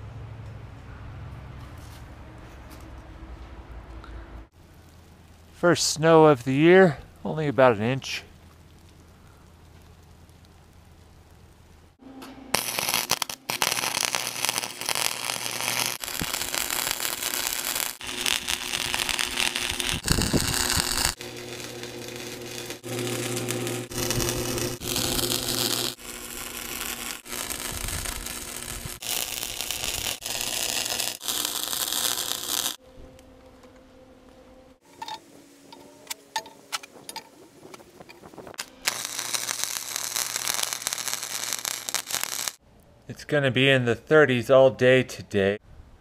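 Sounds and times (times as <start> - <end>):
arc welder crackling: 7.2 - 32.8, 38.3 - 42.6.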